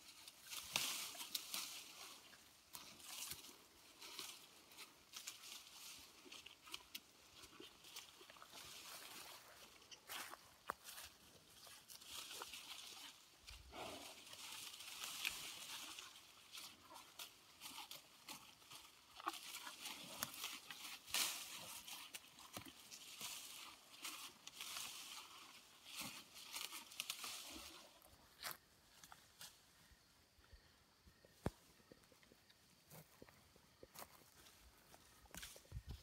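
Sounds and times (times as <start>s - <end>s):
leaves and twigs tearing: 25.9s - 27.8s.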